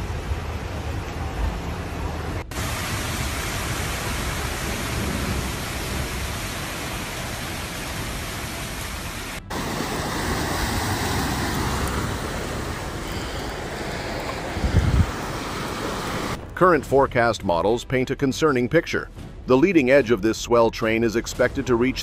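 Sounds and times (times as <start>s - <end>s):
rushing floodwater: 0.0s - 16.5s
rain hiss: 0.0s - 16.6s.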